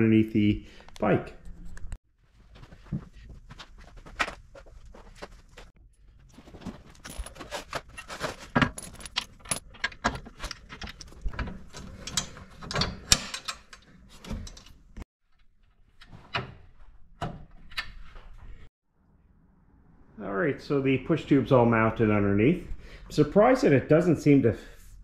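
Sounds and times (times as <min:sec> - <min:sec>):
metal pins clinking and knocking: 0:06.5 - 0:14.8.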